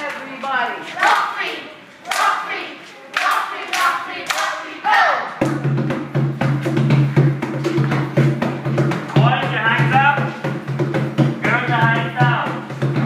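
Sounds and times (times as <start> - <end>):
drum-led dance music: 5.4 - 13.0.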